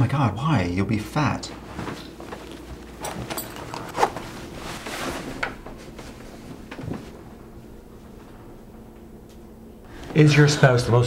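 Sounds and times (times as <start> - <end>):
faint room hum: 0.0 - 11.0
rustling: 1.5 - 7.4.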